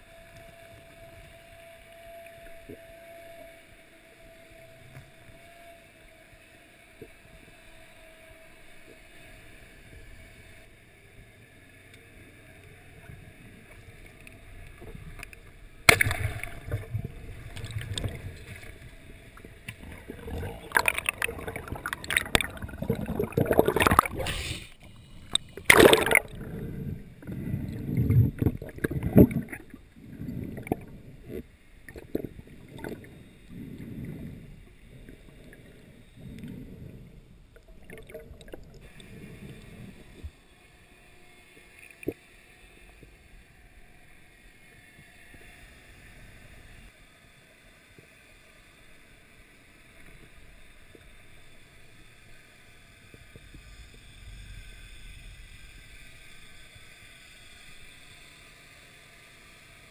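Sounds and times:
faint underwater hiss: 0:00.0 - 0:59.9
underwater swimming surges: 0:16.0 - 0:40.3.

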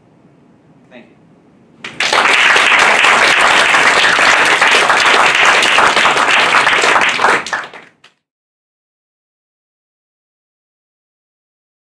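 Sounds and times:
audience applauding: 0:01.8 - 0:08.2.

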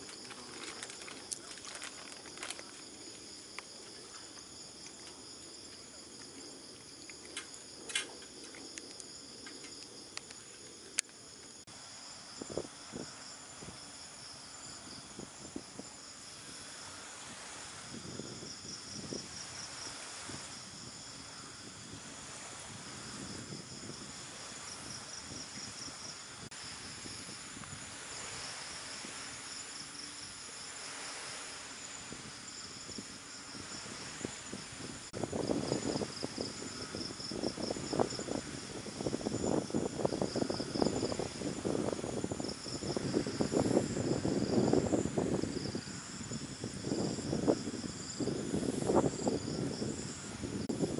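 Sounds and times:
insects trilling: 0:00.0 - 0:50.9.

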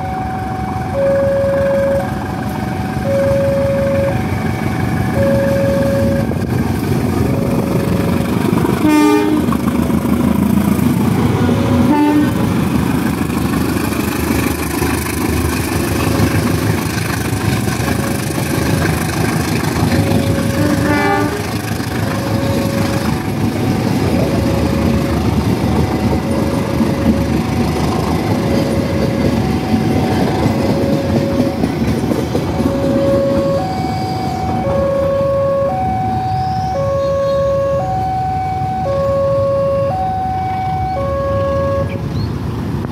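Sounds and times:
level crossing bell beeping: 0:00.0 - 0:02.2, 0:02.8 - 0:06.4, 0:22.0 - 0:23.2, 0:28.1 - 0:31.8, 0:32.6 - 0:41.9
train horn toots: 0:00.0 - 0:04.6, 0:05.2 - 0:06.4, 0:08.8 - 0:09.5, 0:11.3 - 0:12.4, 0:20.0 - 0:23.2, 0:32.6 - 0:42.1
train wheels rumbling on rails: 0:00.0 - 0:42.9.

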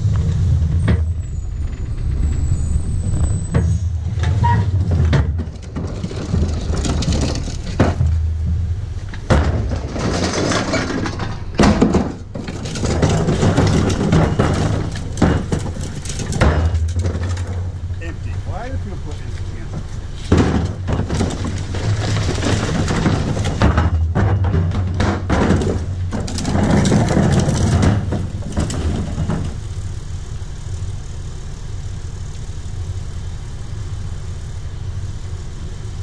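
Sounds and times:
garbage truck engine running: 0:00.0 - 0:36.0
recyclables clattering into hopper: 0:04.8 - 0:08.2, 0:09.3 - 0:17.8, 0:19.6 - 0:29.6.

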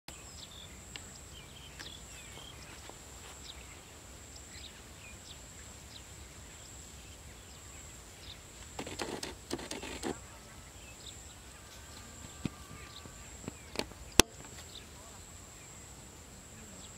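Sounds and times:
faint bird chirps: 0:00.1 - 0:16.9
high thin whine: 0:07.7 - 0:16.7
rustling and scraping: 0:08.6 - 0:10.3.

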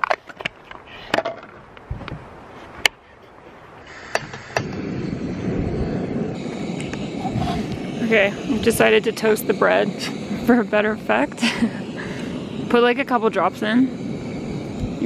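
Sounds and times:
gas stove burner rushing: 0:03.9 - 0:15.0.

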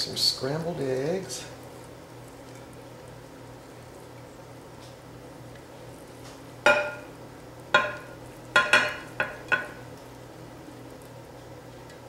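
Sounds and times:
spatula clinking against a plate: 0:06.7 - 0:07.1, 0:07.8 - 0:09.8.

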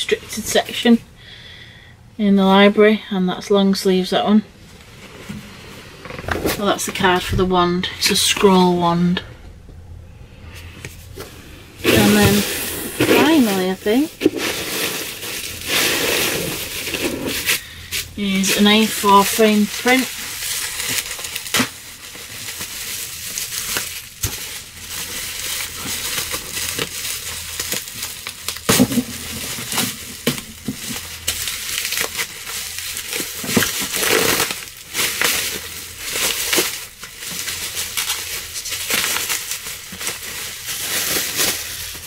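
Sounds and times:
plastic packaging crinkling: 0:10.9 - 0:42.0.

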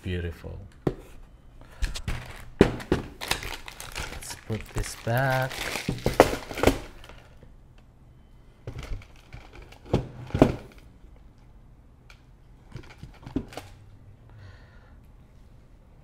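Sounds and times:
boxes knocking and thudding: 0:02.0 - 0:07.1, 0:09.8 - 0:10.8.

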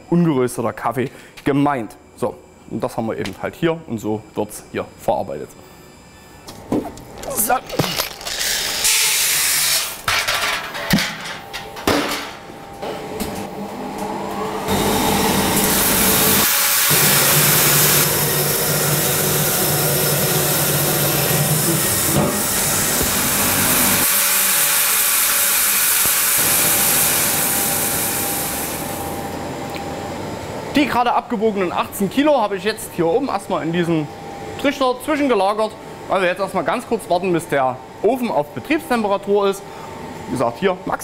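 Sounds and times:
low machine hum: 0:26.4 - 0:41.0.

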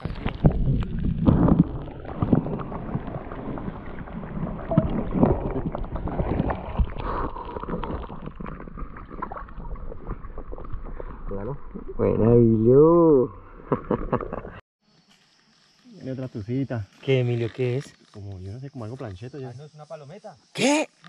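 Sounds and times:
muffled water sloshing underwater: 0:00.0 - 0:12.7.

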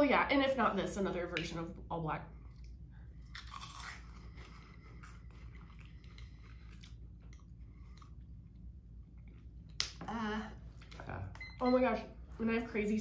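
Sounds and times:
person chewing crunchy snacks: 0:02.4 - 0:08.4.

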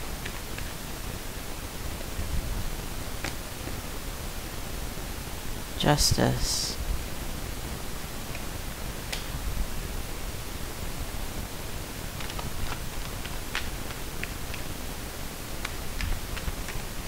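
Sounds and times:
recording hiss: 0:00.0 - 0:17.0.

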